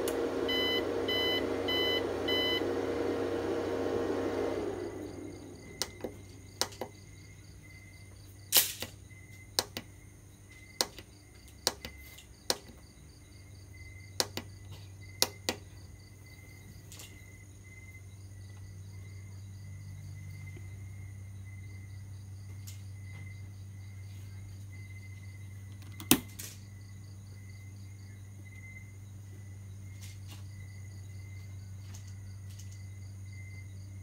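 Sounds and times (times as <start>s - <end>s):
steady low hum: 0.0s - 34.0s
faint high pulsing chirp: 0.5s - 2.7s.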